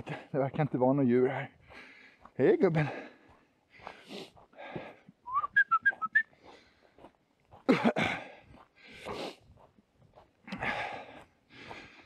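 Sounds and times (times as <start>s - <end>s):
person whistling: 5.2s - 6.3s.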